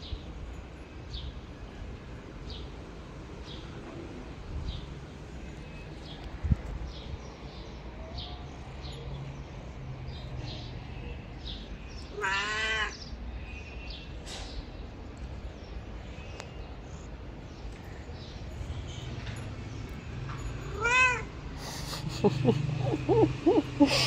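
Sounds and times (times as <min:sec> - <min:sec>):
cat meowing: 0:12.1 - 0:13.0, 0:20.8 - 0:21.3.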